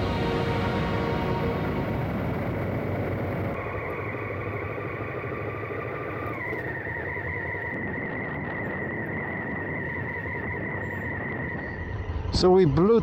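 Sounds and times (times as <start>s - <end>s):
wind rushing: 0.0s - 4.2s
steady high tone: 0.0s - 4.7s.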